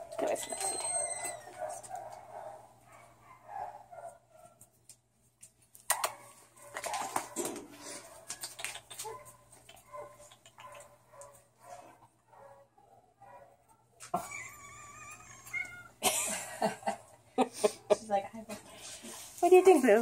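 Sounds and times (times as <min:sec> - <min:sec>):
dog rattling wire cages: 0:06.6 - 0:11.3.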